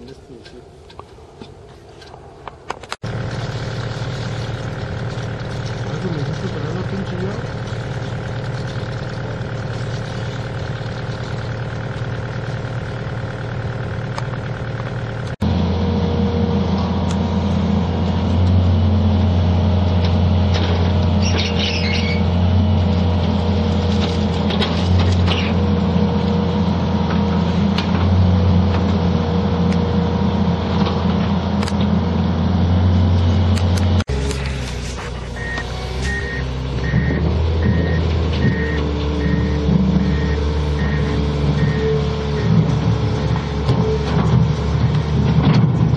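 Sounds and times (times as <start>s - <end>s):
excavator diesel engine: 2.8s - 45.9s
dirt and rocks clattering: 22.9s - 25.8s.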